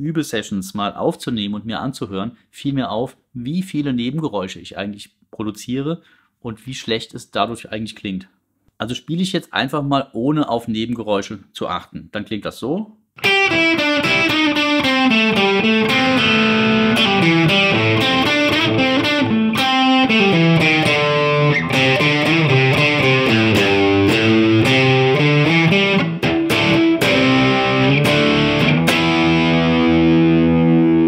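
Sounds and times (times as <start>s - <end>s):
distorted electric guitar riff: 13.2s - 31.0s.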